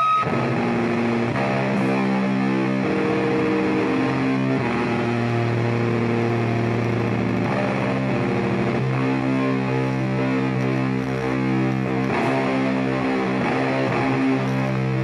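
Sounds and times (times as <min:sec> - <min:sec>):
bass guitar: 0:00.0 - 0:15.0
electric guitar chords: 0:00.0 - 0:15.0.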